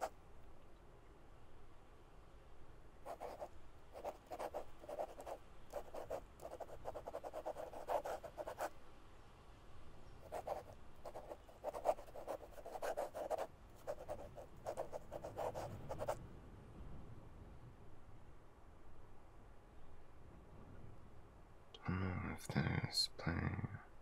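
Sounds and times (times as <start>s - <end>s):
pen scratching on paper: 3.1s - 8.7s, 10.3s - 16.2s.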